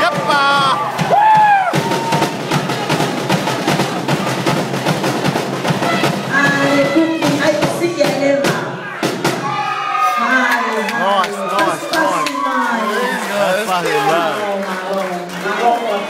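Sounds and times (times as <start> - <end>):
voices calling out: 0.0 - 1.0, 9.0 - 16.0
fast steady drumming: 0.0 - 9.7.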